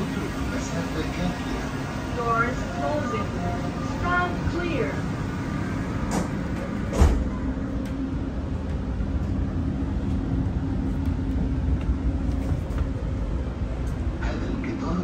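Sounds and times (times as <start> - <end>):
train running rumble: 0.0 - 15.0.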